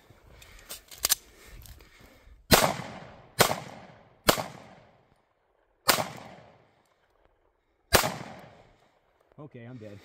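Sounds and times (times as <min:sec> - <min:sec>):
pistol shots with echo: 0:02.5 - 0:05.0, 0:05.8 - 0:06.6, 0:07.9 - 0:08.6.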